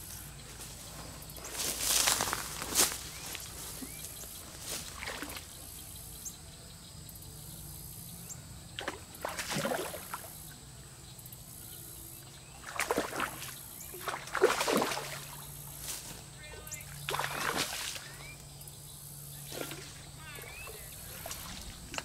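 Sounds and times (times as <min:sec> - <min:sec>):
fish splashing at surface: 0:12.7 - 0:15.4, 0:17.1 - 0:18.2, 0:19.4 - 0:22.0.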